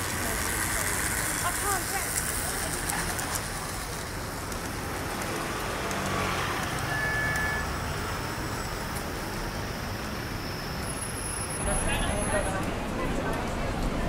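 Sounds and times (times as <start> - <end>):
model trams running on track: 0.0 - 14.0.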